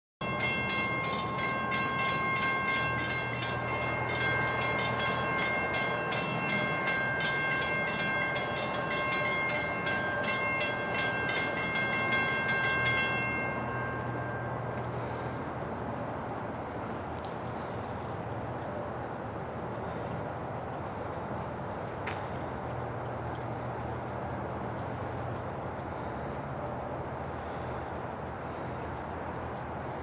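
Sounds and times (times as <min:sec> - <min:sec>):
crossing warning bell ringing: 0:00.2 - 0:16.6.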